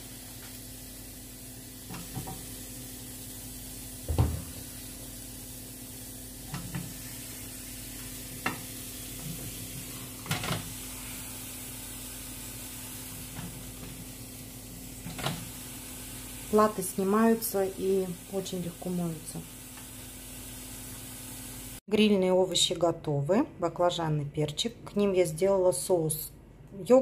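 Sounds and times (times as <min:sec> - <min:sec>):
refrigerator humming: 0:00.0 - 0:19.2.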